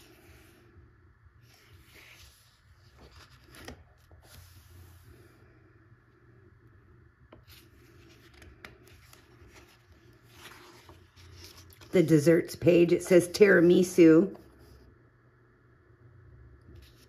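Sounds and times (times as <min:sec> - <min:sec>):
paper pages turning: 0:01.4 - 0:05.2, 0:07.3 - 0:12.7, 0:16.7 - 0:17.0.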